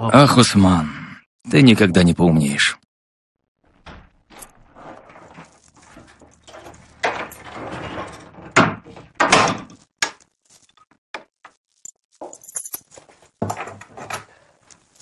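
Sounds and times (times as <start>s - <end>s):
rustling: 4.1s - 8.3s, 11.7s - 15.0s.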